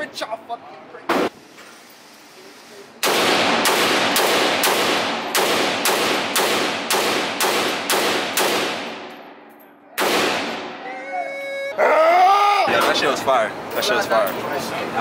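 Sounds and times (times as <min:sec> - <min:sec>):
pistol shots echoing indoors: 0:03.0 - 0:09.2, 0:10.0 - 0:10.8.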